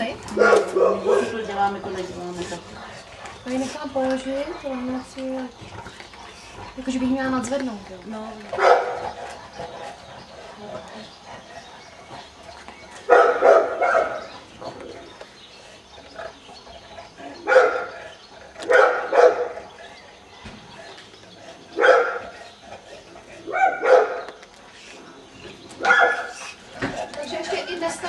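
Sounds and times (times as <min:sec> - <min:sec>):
dog barking: 0:00.3 - 0:01.4, 0:08.6 - 0:09.0, 0:13.1 - 0:14.3, 0:17.4 - 0:18.0, 0:18.6 - 0:19.6, 0:21.8 - 0:22.3, 0:23.5 - 0:24.2, 0:25.8 - 0:26.4.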